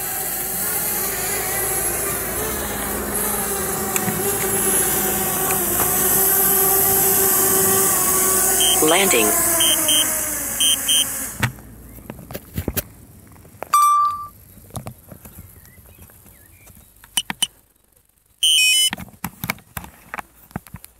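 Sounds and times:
drone propellers running down: 0.0s - 11.9s
loud beep: 8.6s - 11.1s, 13.8s - 14.3s, 18.4s - 18.9s
loud chirping alert: 8.6s - 11.1s, 13.8s - 14.3s
short electronic beeps: 8.6s - 11.1s, 13.7s - 14.3s, 18.4s - 18.9s.

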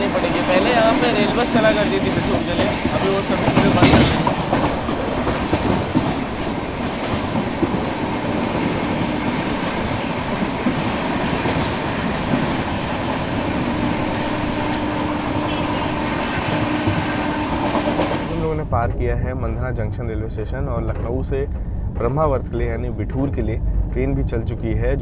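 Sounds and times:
train wheels on rails: 0.0s - 25.0s.

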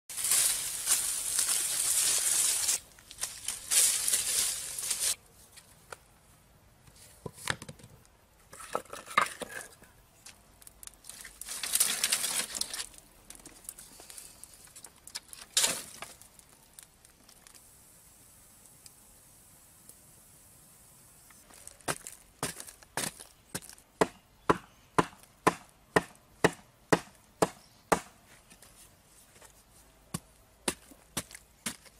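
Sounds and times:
dry leaves rustling and crackling: 0.1s - 5.2s, 10.7s - 17.6s.

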